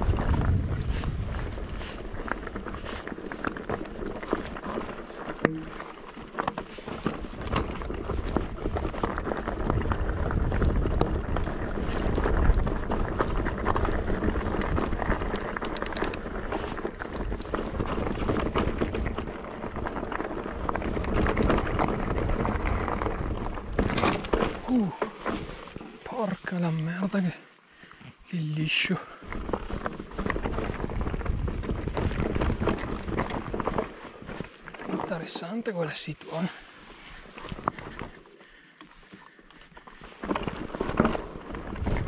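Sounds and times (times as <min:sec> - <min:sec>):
wind on microphone: 0:00.0 - 0:02.8, 0:07.4 - 0:16.1, 0:29.4 - 0:33.8, 0:41.6 - 0:42.0
bike knocks and rattles: 0:00.0 - 0:26.0, 0:29.4 - 0:35.6, 0:39.9 - 0:42.0
tyres crunching on loose ground: 0:00.0 - 0:42.0.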